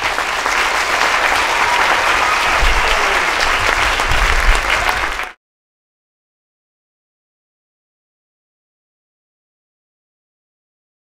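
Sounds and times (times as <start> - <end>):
audience applauding: 0.0 - 5.4.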